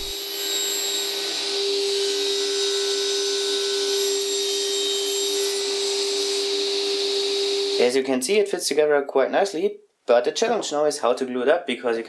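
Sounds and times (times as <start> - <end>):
saw cutting plywood: 0.0 - 7.9
table saw whining: 0.0 - 7.9.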